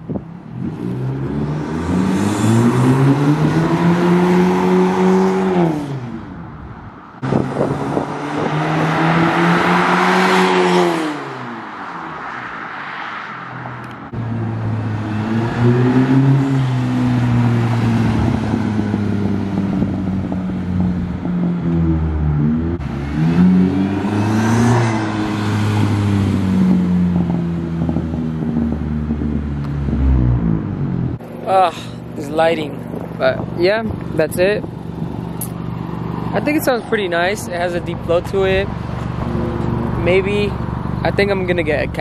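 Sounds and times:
car engine accelerating past: 7.2s - 11.8s, 12.4s - 31.2s.

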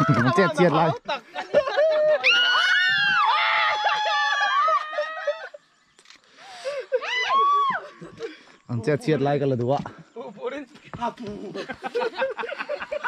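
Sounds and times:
people shrieking and squealing: 1.5s - 5.6s, 6.6s - 8.4s.

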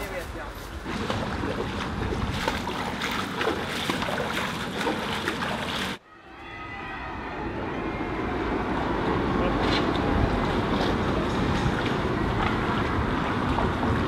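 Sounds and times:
kayak paddles splashing: 0.0s - 6.0s, 9.0s - 14.0s.

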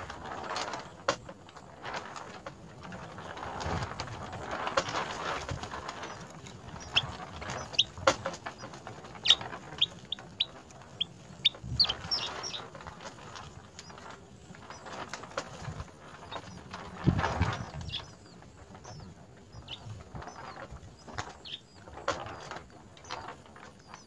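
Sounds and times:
wings fluttering rustle: 0.0s - 24.0s
sparrows chirping: 6.0s - 12.7s, 16.2s - 16.7s, 17.3s - 24.0s.

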